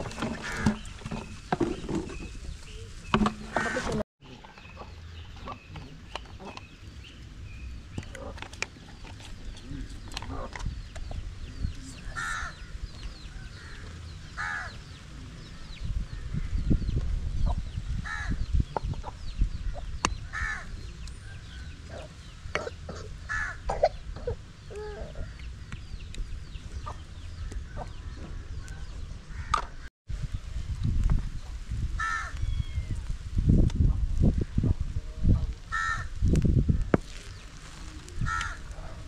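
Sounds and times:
small birds chirping: 0.0 - 30.6.

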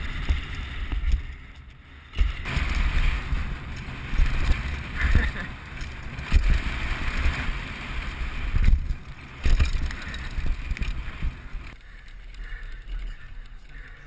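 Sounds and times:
bike thumping over bumps: 0.0 - 14.0
bike tyres on dirt trail: 0.0 - 14.0
wind rushing over camera: 0.0 - 14.0.

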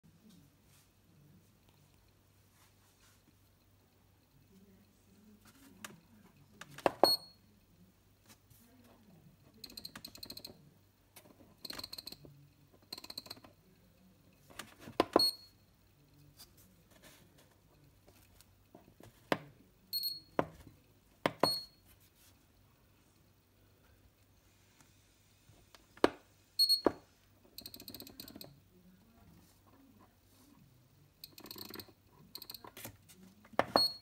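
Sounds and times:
short high beeps: 20.0 - 20.4.

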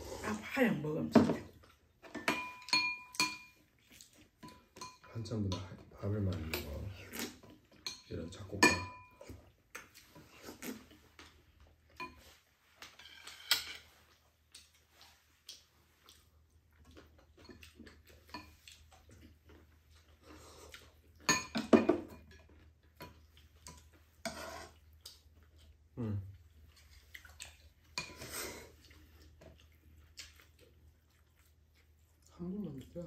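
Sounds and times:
eating sounds: 22.5 - 33.0.

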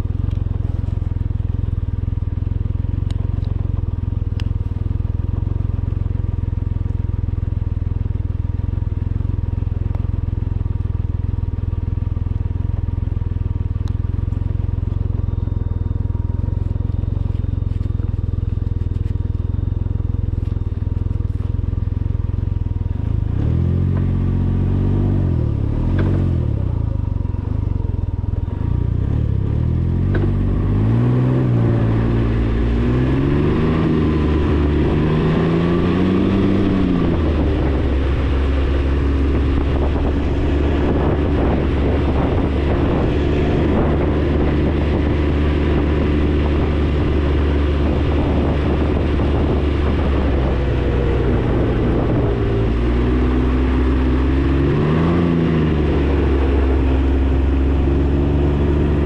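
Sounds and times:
motorcycle engine revving: 0.0 - 59.0
wind noise: 30.2 - 59.0.

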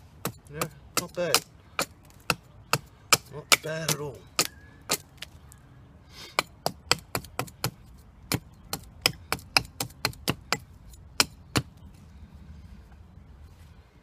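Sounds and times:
hatchet chopping tree root: 0.0 - 5.3, 6.4 - 11.8.

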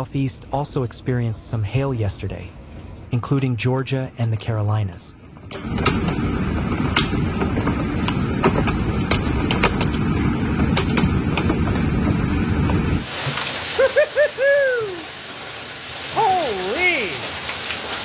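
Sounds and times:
heavy rain and hail: 12.0 - 18.0
hail striking hard surfaces: 13.0 - 18.0.

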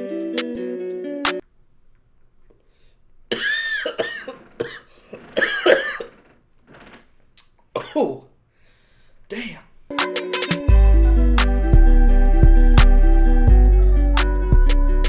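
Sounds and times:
person coughing harshly: 3.3 - 6.1, 7.8 - 8.2.

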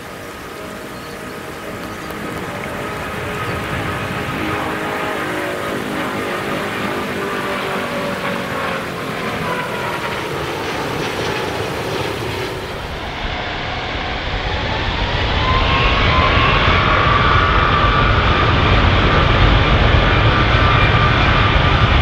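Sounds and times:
jet engines roaring: 0.0 - 22.0
deep rumble: 12.7 - 22.0.

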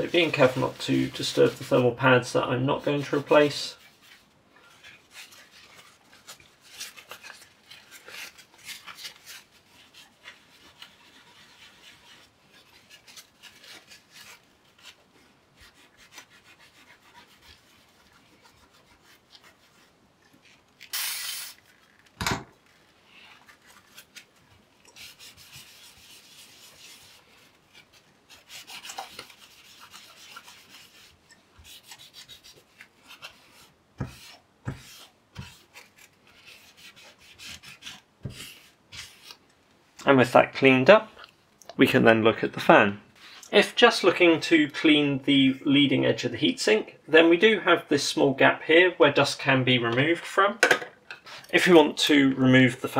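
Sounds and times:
cloth scrubbing on metal: 0.0 - 20.6, 22.7 - 39.4.

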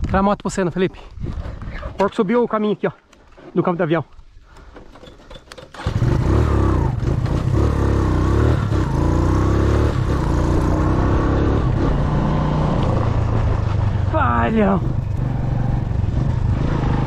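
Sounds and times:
motorcycle engine running: 5.8 - 17.0.

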